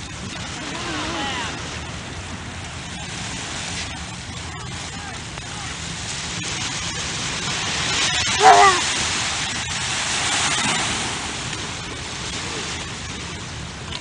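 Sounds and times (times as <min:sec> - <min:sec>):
small waves breaking on sand: 0:00.0 - 0:14.0
wavering voice-like call: 0:08.3 - 0:09.0.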